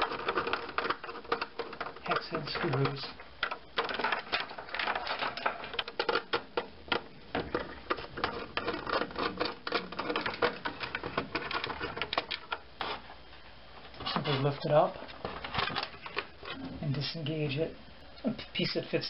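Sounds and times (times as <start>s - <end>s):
nut driver clicking and scraping screws: 0.0s - 13.0s.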